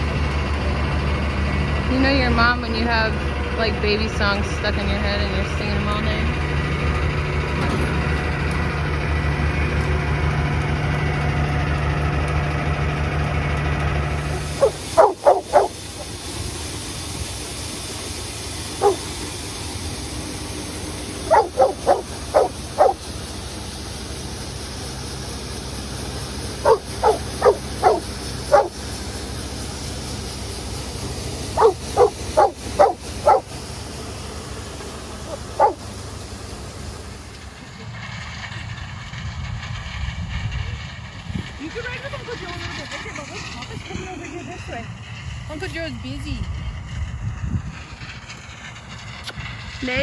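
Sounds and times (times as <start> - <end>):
combine engine running: 0.0 - 50.0
low machine hum: 0.0 - 50.0
dog barking: 14.6 - 15.8, 18.8 - 19.1, 21.3 - 23.0, 26.6 - 28.8, 31.6 - 33.5, 35.3 - 35.8.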